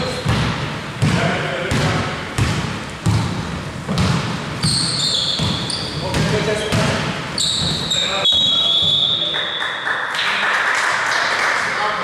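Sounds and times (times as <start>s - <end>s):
basketball bouncing: 0.0s - 7.9s
shoe squeaks on court: 4.6s - 6.4s, 7.4s - 9.3s.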